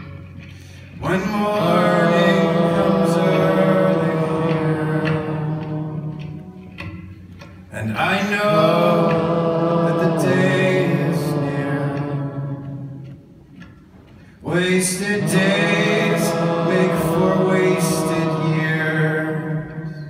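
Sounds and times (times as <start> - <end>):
crowd singing in unison: 0.9 - 7.2, 7.8 - 13.5, 14.4 - 20.0.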